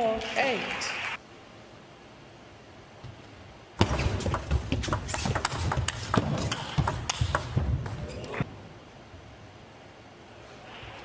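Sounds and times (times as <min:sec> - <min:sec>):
table tennis ball clicking: 0:03.8 - 0:08.0.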